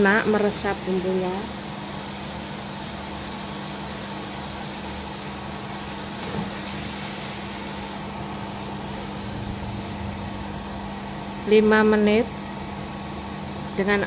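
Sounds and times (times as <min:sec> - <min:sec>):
low motor hum: 0:00.0 - 0:14.0.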